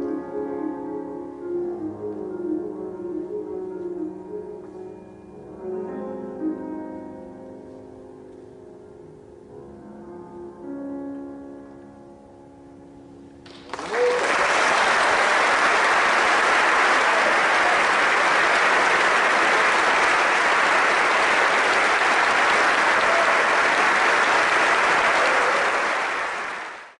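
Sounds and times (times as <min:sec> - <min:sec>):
audience applauding: 0:13.4 - 0:27.0.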